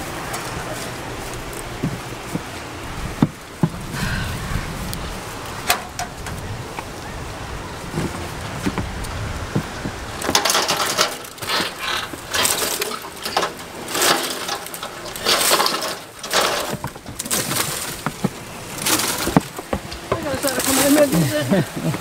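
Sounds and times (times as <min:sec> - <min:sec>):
branches rustling dragged through grass: 0:00.0 - 0:22.0.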